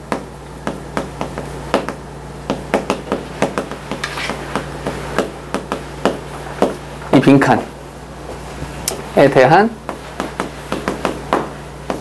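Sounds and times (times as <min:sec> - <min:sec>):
chalk tapping and scratching: 0:00.7 - 0:06.9, 0:09.8 - 0:12.0
chalk scraping on chalkboard: 0:03.8 - 0:05.0.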